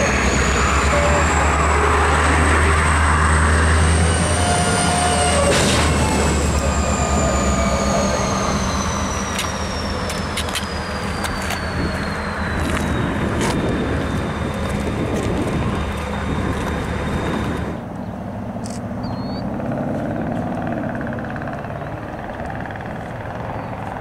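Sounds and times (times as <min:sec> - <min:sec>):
high falling whine: 0:00.0 - 0:18.0
diesel locomotive engine hum: 0:00.0 - 0:24.0
wheels clicking on rails: 0:05.5 - 0:17.9.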